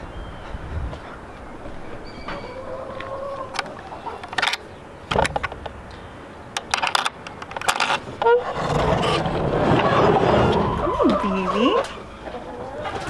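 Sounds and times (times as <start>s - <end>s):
door squeak: 2.0s - 2.7s, 8.2s - 8.6s
chickens clucking and squawking: 2.3s - 4.8s, 8.2s - 13.0s
metal latch rattling and clinking: 3.6s - 5.8s, 6.6s - 8.3s.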